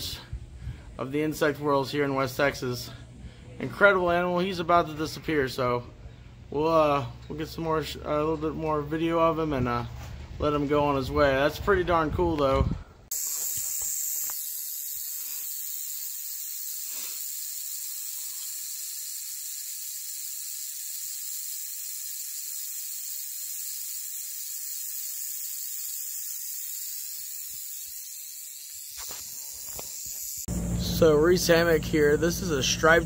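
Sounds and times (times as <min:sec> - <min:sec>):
rattlesnake rattling: 0:13.1 - 0:31.6.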